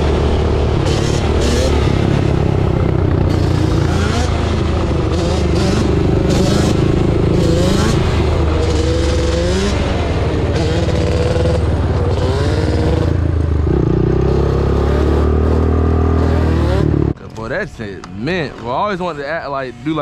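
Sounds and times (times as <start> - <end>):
two-stroke engine running: 0.0 - 20.0.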